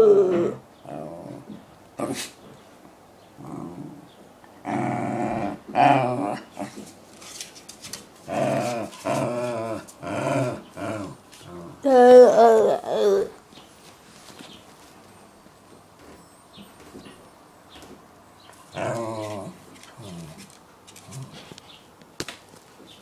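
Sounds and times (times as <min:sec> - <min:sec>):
dog moaning and growling: 0:00.0 - 0:02.4, 0:03.4 - 0:06.9, 0:08.2 - 0:13.4, 0:18.7 - 0:21.5.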